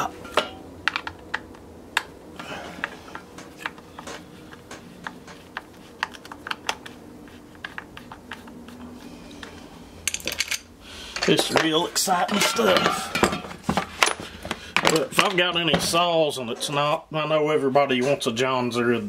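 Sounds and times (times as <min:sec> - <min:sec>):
screwdriver clicks and taps: 0:00.8 - 0:02.1, 0:03.2 - 0:07.0, 0:07.6 - 0:08.6.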